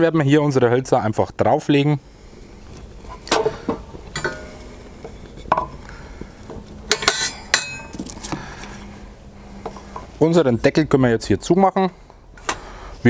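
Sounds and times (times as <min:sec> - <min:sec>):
wooden sticks knocking on metal: 0:03.2 - 0:05.8.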